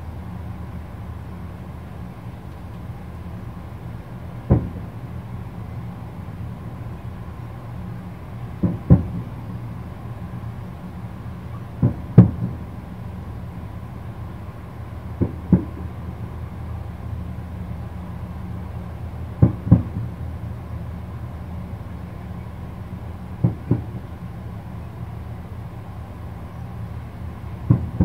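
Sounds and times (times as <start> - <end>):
steady low rumble: 0.0 - 28.0
distant firework shells bursting: 27.7 - 28.0.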